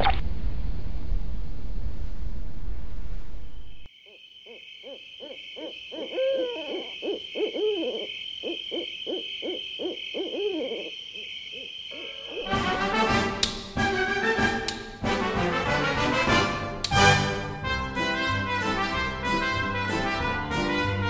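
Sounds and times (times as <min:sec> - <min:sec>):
owls hooting: 0:04.0 - 0:12.5
brass music: 0:12.4 - 0:21.0.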